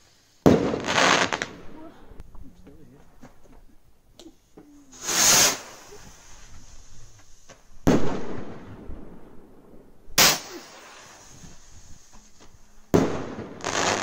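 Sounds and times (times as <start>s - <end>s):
firework bangs: 0.0s - 2.0s, 4.9s - 14.0s.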